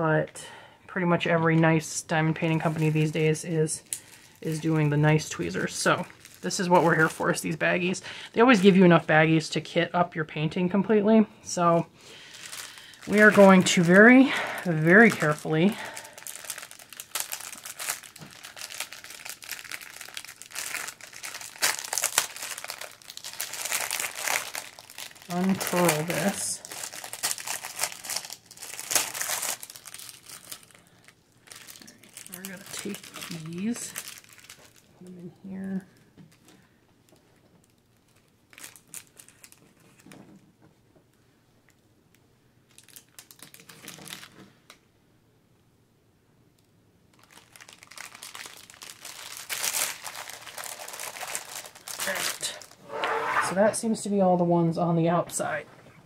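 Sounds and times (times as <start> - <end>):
plastic wrapping crinkling: 2.4 - 8.8, 11.5 - 40.4, 42.6 - 44.8, 47.1 - 53.0.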